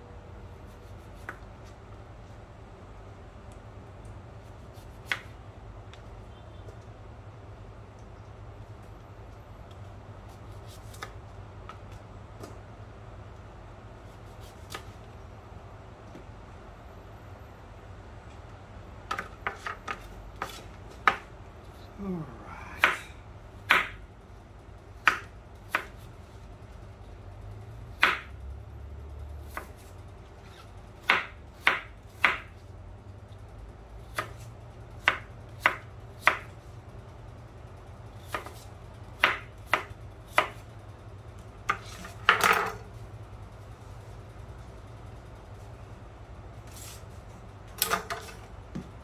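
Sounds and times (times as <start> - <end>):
knife chopping on plastic board: 19.1 - 21.3, 23.7 - 24.0, 25.0 - 25.9, 28.0 - 28.3, 31.0 - 32.5, 35.0 - 36.5, 38.3 - 38.6, 39.2 - 40.6.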